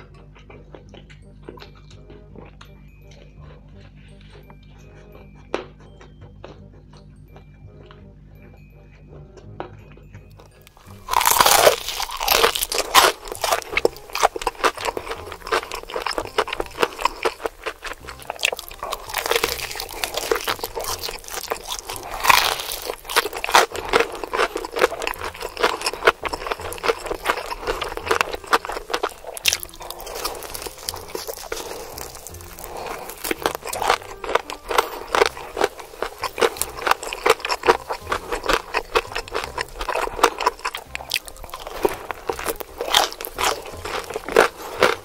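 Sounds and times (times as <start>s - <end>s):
crunchy chewing of fried chicken: 0.0s - 45.0s.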